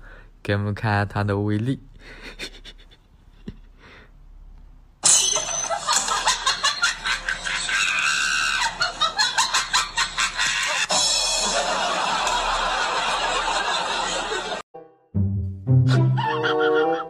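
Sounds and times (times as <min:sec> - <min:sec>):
comedy screaming and cackling laughter: 0:05.5 - 0:14.6, 0:15.9 - 0:17.0.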